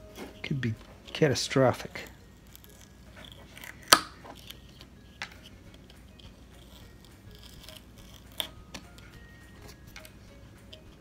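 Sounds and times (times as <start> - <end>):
carving knife cutting wood chips: 0.0 - 11.0
sharp wood snaps: 3.5 - 4.6.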